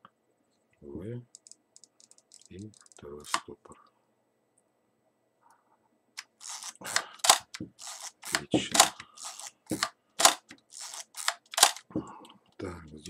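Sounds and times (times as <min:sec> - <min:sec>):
camera shutter snap: 0:06.2 - 0:11.8
camera wind ratchet rasping: 0:06.2 - 0:11.8.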